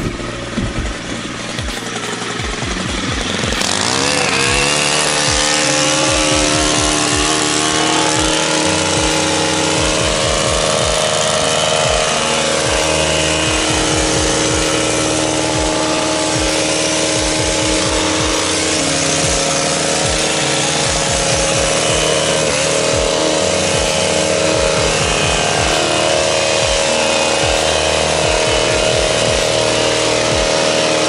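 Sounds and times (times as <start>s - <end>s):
hedge trimmer engine revving: 0.0s - 31.0s.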